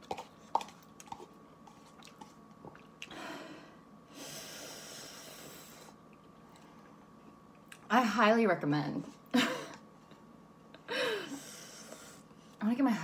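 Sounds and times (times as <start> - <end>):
chewing: 0.0 - 3.1.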